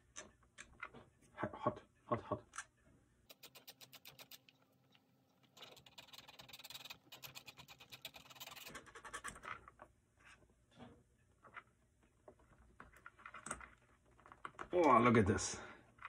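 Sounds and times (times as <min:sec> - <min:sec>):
faint scratches and clicks: 0:03.3 - 0:14.7.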